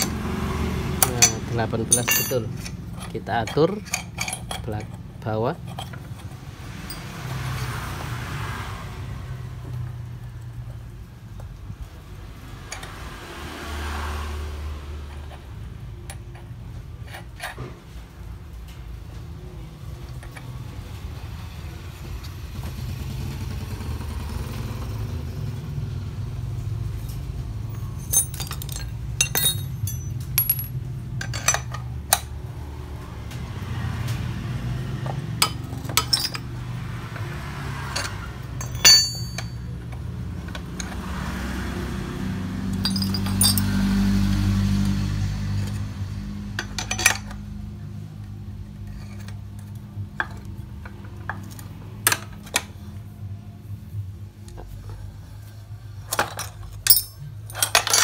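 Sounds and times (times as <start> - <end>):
spanners clinking on metal: 1.0 - 7.8, 27.7 - 32.3, 35.4 - 36.5, 37.8 - 41.0, 42.7 - 43.9, 46.6 - 47.4, 56.1 - 58.0.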